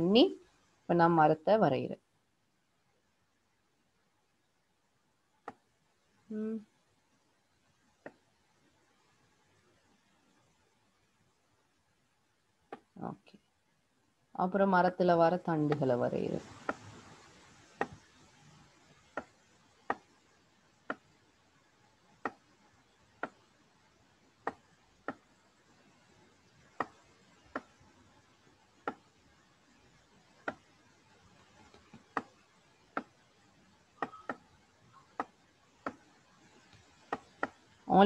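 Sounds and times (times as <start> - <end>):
computer mouse clicking: 31.6 - 33.2.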